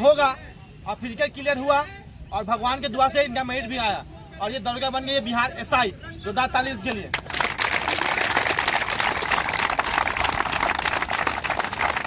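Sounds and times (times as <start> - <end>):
crowd applauding: 7.1 - 12.0.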